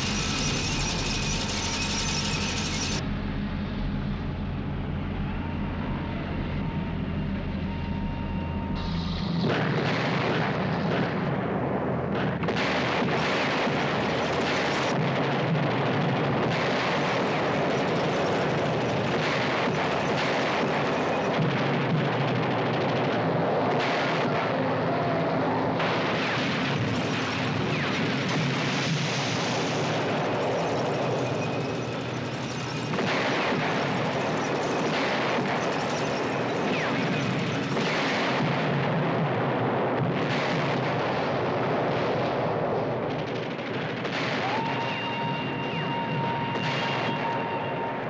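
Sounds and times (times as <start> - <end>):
gunshots: 0.0 - 3.0, 9.4 - 48.0
high whistle-like tone: 0.0 - 3.0
low engine-like hum: 0.0 - 9.7
explosions: 8.8 - 48.0.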